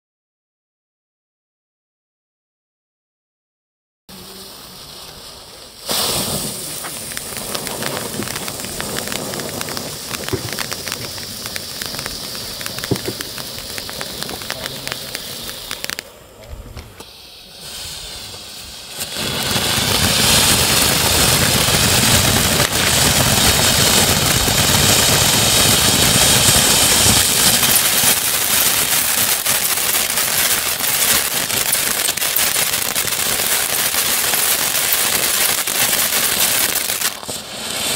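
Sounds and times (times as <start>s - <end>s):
firework fountain hissing and crackling: 4.1s - 37.9s.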